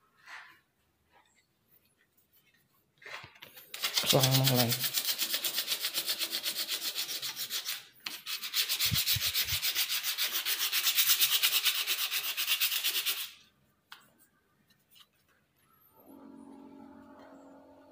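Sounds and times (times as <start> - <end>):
sandpaper rubbing on wood: 3.7 - 13.4.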